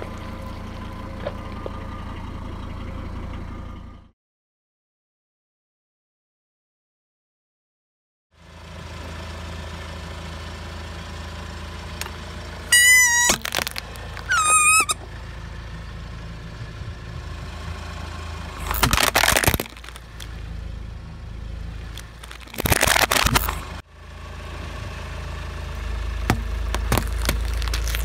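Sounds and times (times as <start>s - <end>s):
car engine idling: 0.0s - 4.1s, 8.4s - 28.0s
plastic crunching under a tyre: 12.0s - 15.0s, 18.6s - 20.4s, 21.9s - 23.8s, 26.2s - 28.0s
rubber toy squealing: 12.7s - 15.0s, 18.6s - 20.1s, 22.0s - 23.7s, 26.9s - 28.0s.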